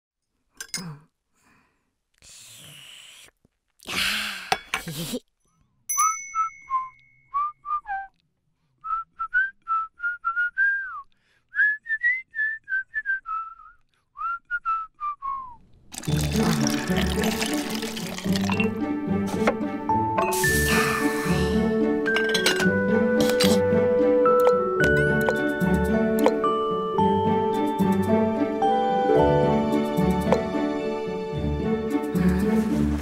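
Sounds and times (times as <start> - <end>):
whistled tune: 6.0 - 8.2, 8.8 - 15.6.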